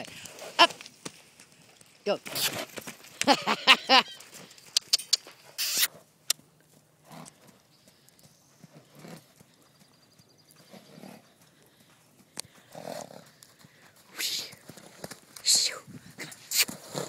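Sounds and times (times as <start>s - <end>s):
hooves thudding on sand: 4.2s - 17.0s.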